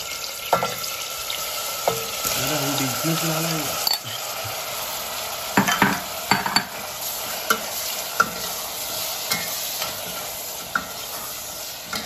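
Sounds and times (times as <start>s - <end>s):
meat sizzling in a pot: 0.0s - 12.0s
spoon knocking against pot: 5.6s - 6.8s.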